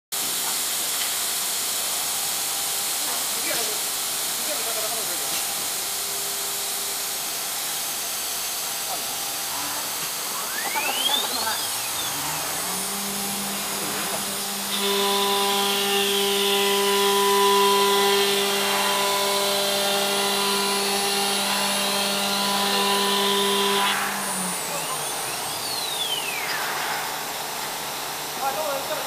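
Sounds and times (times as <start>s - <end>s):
router bit cutting hiss: 0.4s - 29.0s
router spindle whine: 2.8s - 29.0s.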